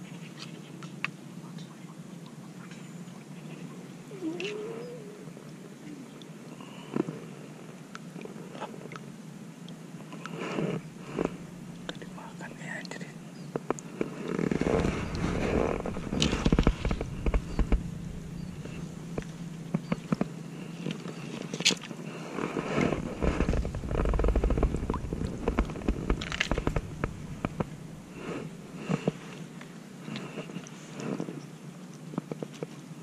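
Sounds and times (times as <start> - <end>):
low rumbling thumps on microphone: 10.8 - 12.2, 13.6 - 21.0, 22.6 - 29.2.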